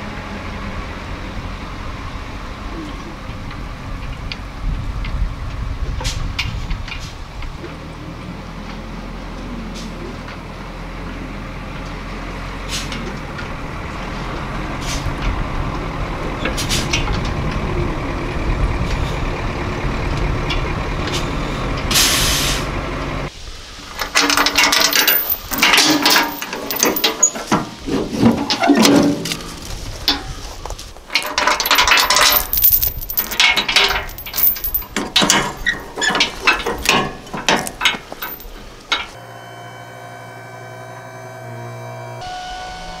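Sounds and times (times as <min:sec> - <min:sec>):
diesel truck engine running: 0:10.5 - 0:22.0
air brake hiss: 0:21.9 - 0:22.7.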